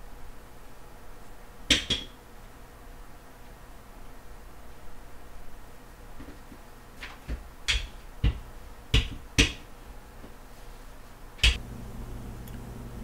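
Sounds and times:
objects knocking on kitchen counter: 7.2s - 9.6s.

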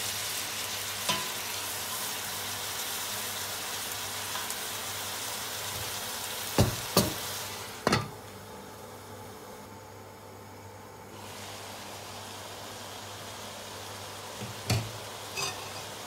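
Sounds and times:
meat sizzling in a pot: 0.0s - 16.0s
glass lid clanking on pot: 14.6s - 15.9s.

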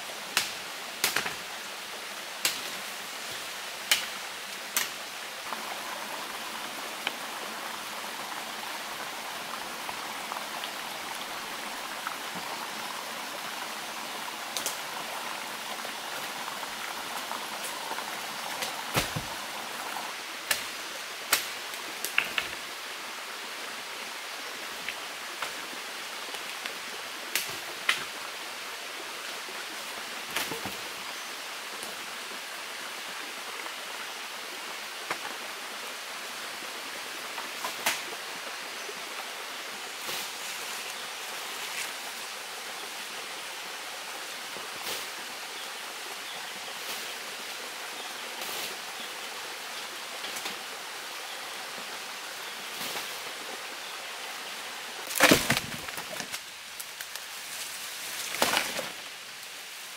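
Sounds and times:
running water: 0.0s - 59.9s
sticks and leaves snapping: 0.4s - 1.4s, 3.9s - 5.0s, 21.3s - 22.5s, 55.0s - 57.3s.

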